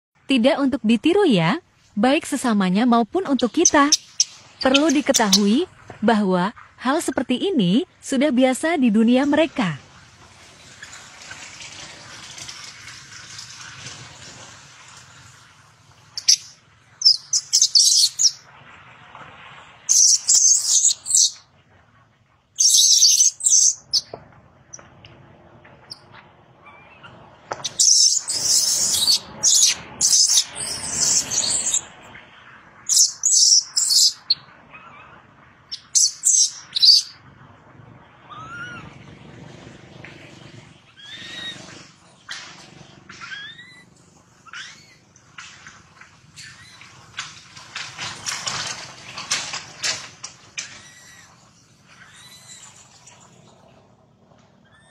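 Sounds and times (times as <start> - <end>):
monkey screaming: 3.3 - 5.6, 16.2 - 18.4, 19.9 - 21.4, 22.6 - 24.0, 26.6 - 31.9, 32.9 - 37.2, 38.3 - 38.9, 40.9 - 41.7, 43.2 - 45.0, 50.7 - 51.4, 52.0 - 52.7, 54.6 - 54.9
short rising squeals: 38.0 - 45.1.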